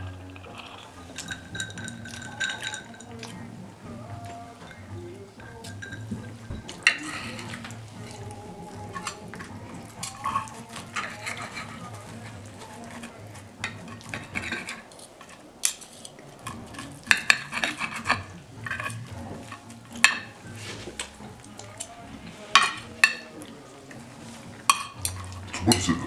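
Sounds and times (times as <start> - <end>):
cutlery scraping on ceramic plate: 0.4 - 26.0
sharp cutlery clinks: 1.1 - 3.4, 5.5 - 20.4, 24.7 - 26.0.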